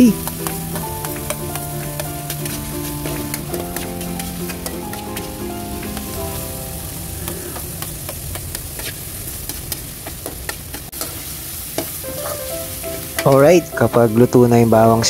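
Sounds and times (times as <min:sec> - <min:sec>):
metal turner scraping a wok: 0:00.0 - 0:06.4, 0:07.3 - 0:12.4
food sizzling in a wok: 0:00.0 - 0:15.0.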